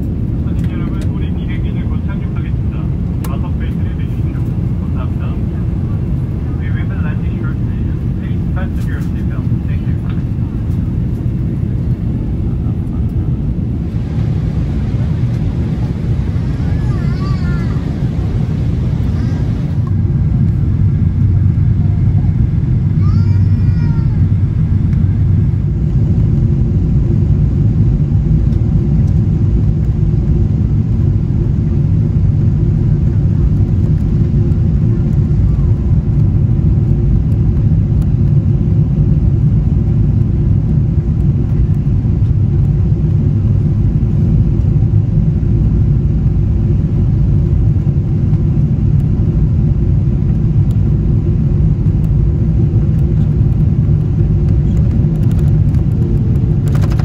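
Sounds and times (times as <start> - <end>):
jet engines rumbling: 0.0 - 57.0.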